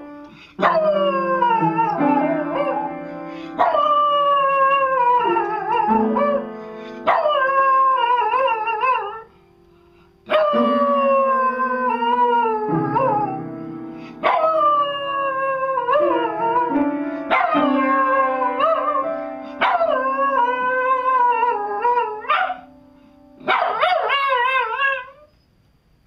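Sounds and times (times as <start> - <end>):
piano notes: 0.0 - 24.7
dog howling: 0.6 - 2.9, 3.6 - 6.4, 7.1 - 9.2, 10.3 - 13.4, 14.2 - 22.7, 23.5 - 25.3.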